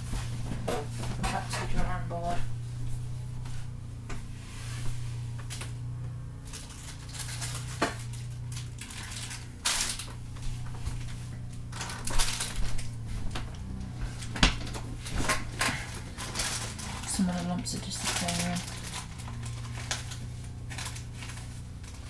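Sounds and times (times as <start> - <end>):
rustling: 0.0 - 22.0
steady low hum: 0.0 - 22.0
small objects clicking and clattering: 6.5 - 10.2.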